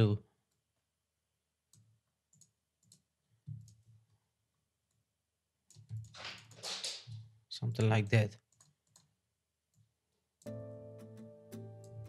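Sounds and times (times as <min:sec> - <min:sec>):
computer mouse clicks: 0:08.5 - 0:09.1.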